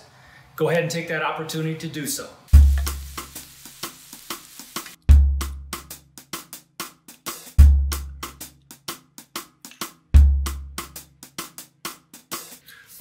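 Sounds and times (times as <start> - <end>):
music with drum beat: 2.5 - 13.0
hi-hat and snare ticks: 6.4 - 7.6, 8.2 - 10.2.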